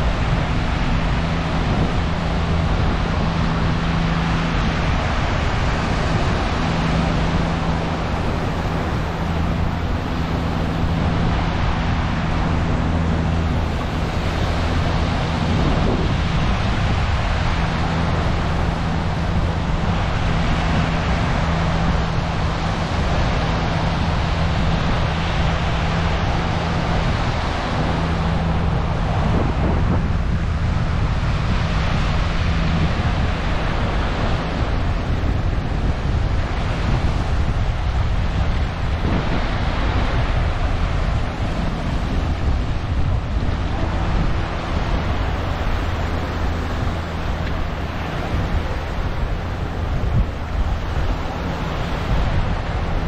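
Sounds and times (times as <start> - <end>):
small waves breaking on a beach: 0.0 - 53.0
steady low hum: 0.0 - 53.0.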